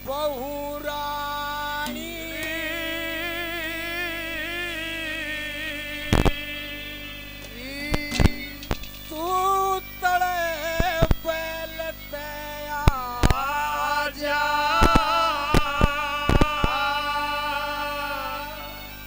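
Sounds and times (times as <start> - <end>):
man singing wordless melody: 0.0 - 19.0
hand drum strokes: 1.8 - 2.6, 8.0 - 9.0.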